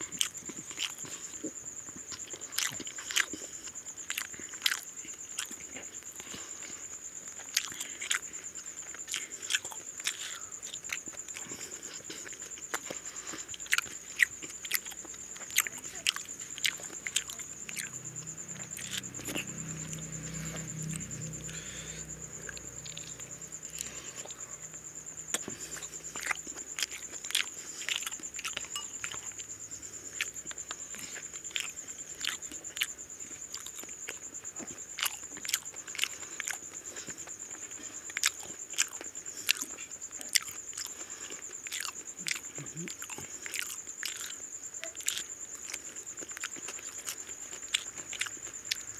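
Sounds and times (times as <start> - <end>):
wet mouth smacks and chewing: 0.1 - 6.3, 9.0 - 18.0, 38.1 - 44.4, 45.0 - 48.9.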